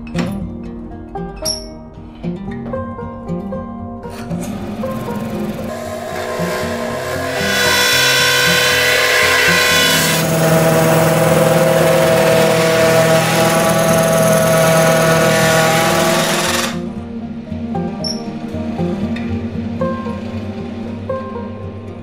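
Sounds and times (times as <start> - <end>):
background music: 0.0 - 22.0
drill bit grinding into wood: 4.4 - 16.8.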